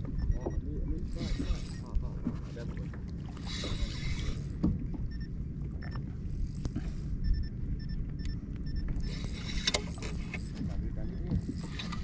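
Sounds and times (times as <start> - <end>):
wind and water rumble: 0.0 - 12.0
fishing reel ticking: 9.0 - 12.0.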